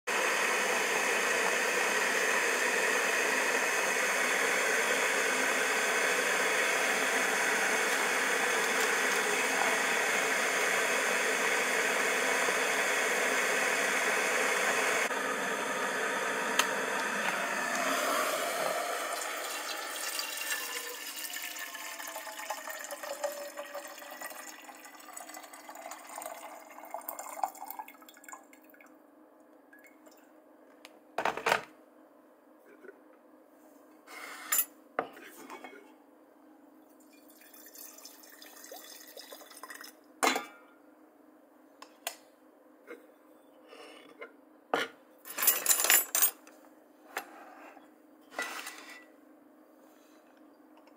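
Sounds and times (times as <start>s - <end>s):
electric kettle boiling water: 0.1s - 29.0s, 37.1s - 40.6s.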